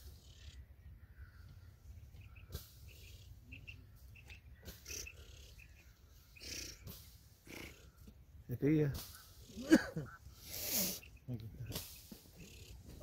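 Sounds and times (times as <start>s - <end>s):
faint high chirps: 0.0s - 6.9s.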